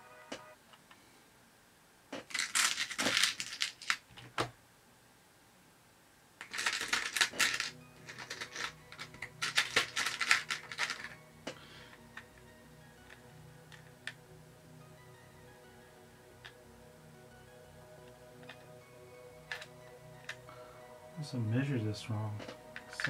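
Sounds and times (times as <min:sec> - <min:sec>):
screws clinking in plastic box: 0:02.3 - 0:04.0, 0:06.4 - 0:11.2.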